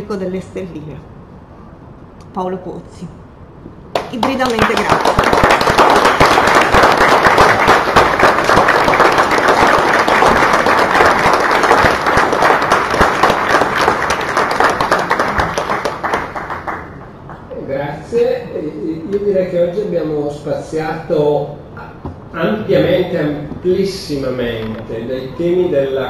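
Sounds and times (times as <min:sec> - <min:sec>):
audience applause: 0:04.0 - 0:17.5.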